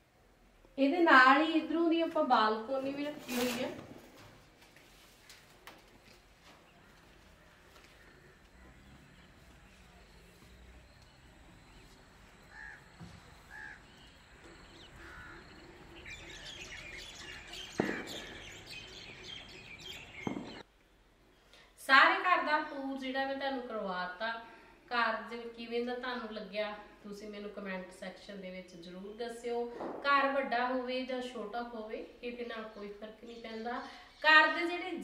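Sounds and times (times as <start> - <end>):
birds calling: 6.2 - 20.6
sharp knock: 17.7 - 18.5, 20.2 - 20.6.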